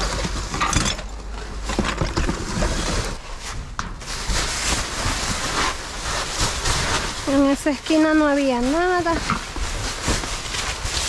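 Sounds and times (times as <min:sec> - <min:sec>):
trash rustling in dumpster: 0:00.0 - 0:11.0.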